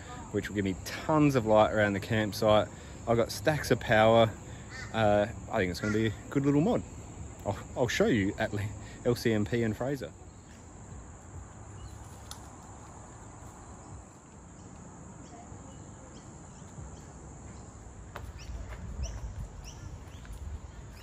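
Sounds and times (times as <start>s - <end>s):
bird chirping: 13.2s - 21.0s.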